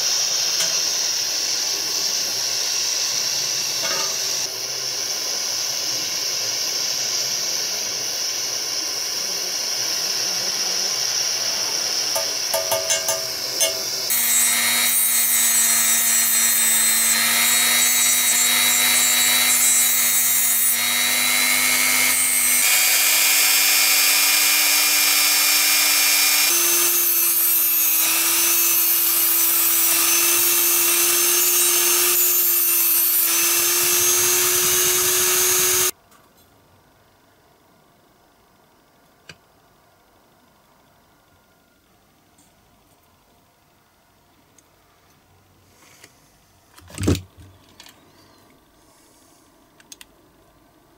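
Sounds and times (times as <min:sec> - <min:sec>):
gas torch hissing: 0:00.0 - 0:14.4
rotary tool whining: 0:00.0 - 0:36.0.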